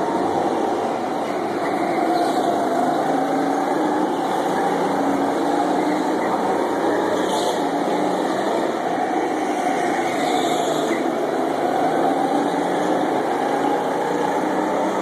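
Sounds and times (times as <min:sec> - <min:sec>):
go-kart engines droning: 0:00.0 - 0:15.0.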